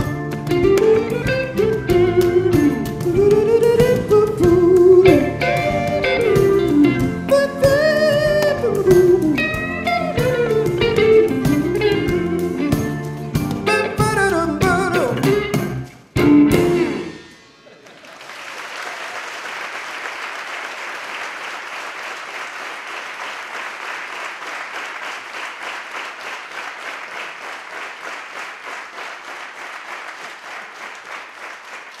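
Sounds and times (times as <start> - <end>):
audience applauding: 17.6 - 32.0.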